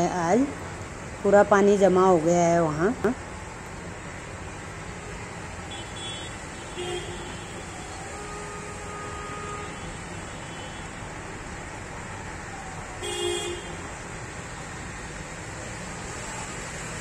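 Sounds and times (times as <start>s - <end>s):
rain: 0.0s - 17.0s
traffic hiss: 0.0s - 17.0s
vehicle horns tooting: 5.0s - 10.9s, 13.0s - 13.8s.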